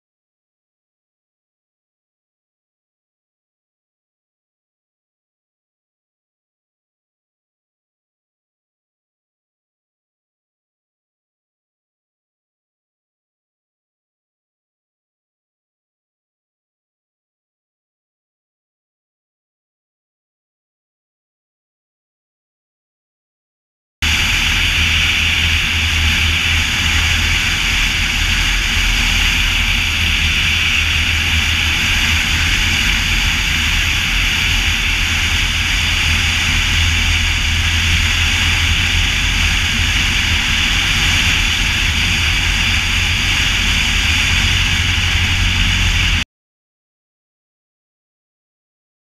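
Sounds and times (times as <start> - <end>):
airplane engine and propeller droning: 24.0 - 46.2.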